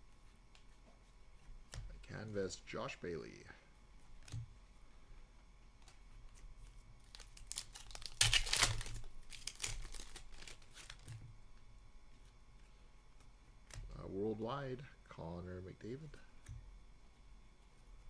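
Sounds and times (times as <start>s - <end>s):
light crinkles: 5.8s - 11.6s
foil wrapper tearing: 7.0s - 11.2s.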